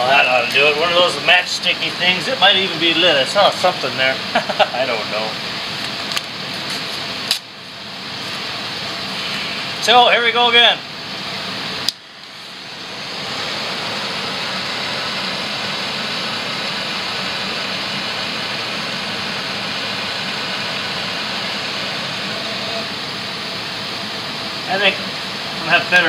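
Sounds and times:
gas flame hissing: 0:00.3 - 0:26.0.

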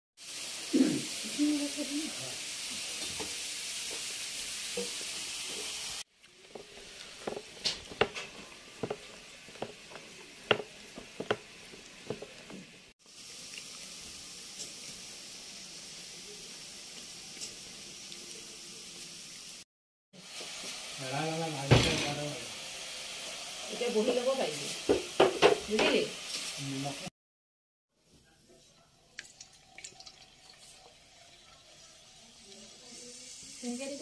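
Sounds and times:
rolling pin knocking on board: 0:07.2 - 0:11.5.

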